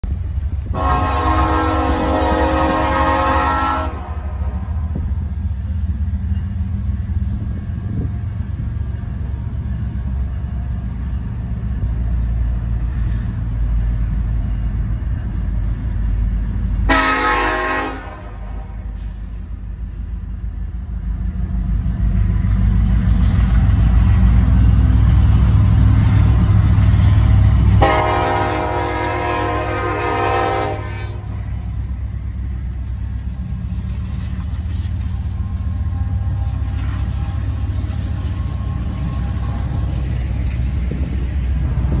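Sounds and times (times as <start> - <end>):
diesel locomotives running past: 0.0 - 42.0
rail cars rushing by: 0.0 - 42.0
locomotive horn blast: 0.7 - 4.8, 16.9 - 19.2, 27.8 - 31.4.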